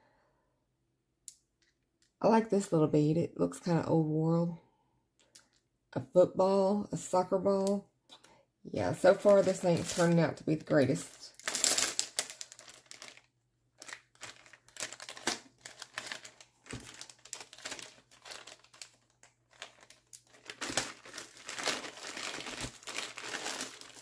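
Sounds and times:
plastic bags crinkling: 9.0 - 24.0.

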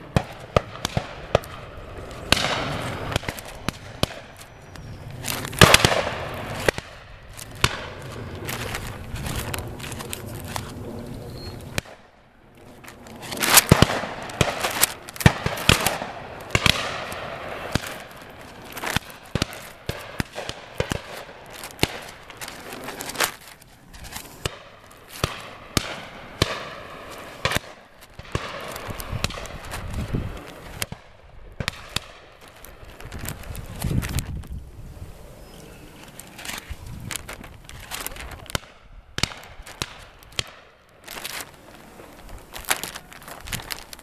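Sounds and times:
shotguns firing: 2.3 - 4.3, 5.6 - 8.1, 13.4 - 18.1.

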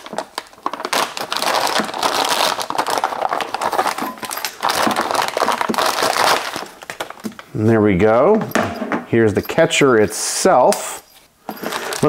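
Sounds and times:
plastic bag crinkling: 0.0 - 8.6, 9.2 - 12.0.

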